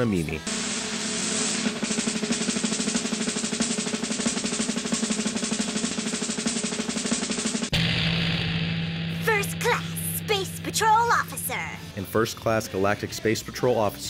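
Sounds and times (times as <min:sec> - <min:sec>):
snare drum roll: 0:00.5 - 0:07.8.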